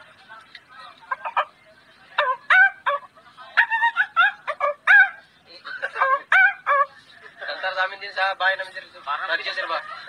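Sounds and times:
man imitating turkey gobbling: 5.8s - 6.9s.

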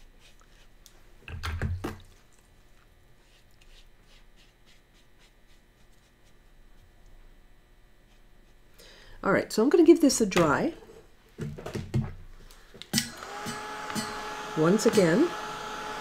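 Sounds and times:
brush on paper: 0.0s - 0.7s, 3.2s - 6.9s, 8.0s - 8.6s.

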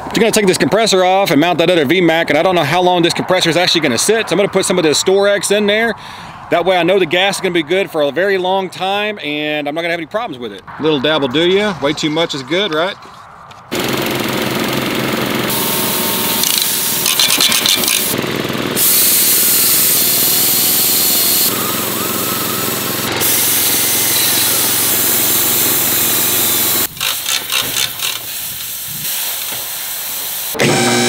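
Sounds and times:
drill boring through steel: 13.7s - 28.4s, 30.4s - 31.0s
power tools cutting steel: 13.7s - 31.0s.

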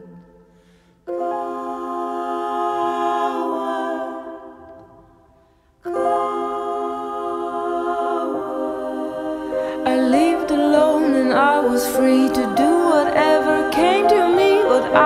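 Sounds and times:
hummed vocal chord: 0.0s - 5.2s, 5.8s - 15.0s.

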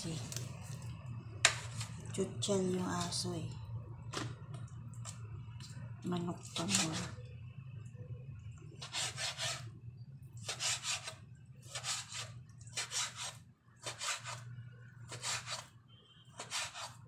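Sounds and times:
knife slicing raw chicken: 10.4s - 14.4s, 15.1s - 15.7s, 16.4s - 17.0s.

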